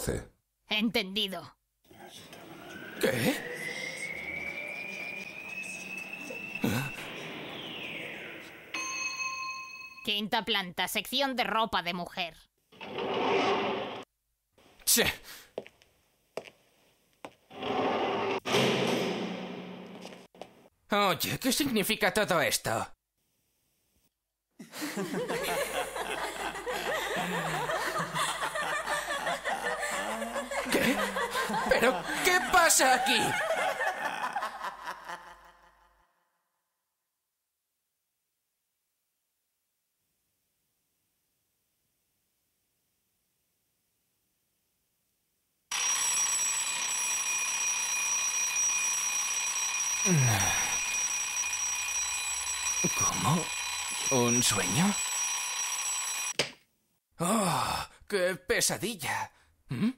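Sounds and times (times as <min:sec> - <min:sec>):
alarm clock ringing: 0:02.5 - 0:10.1, 0:25.2 - 0:34.0, 0:45.7 - 0:56.4
crowd laughing: 0:24.6 - 0:36.0.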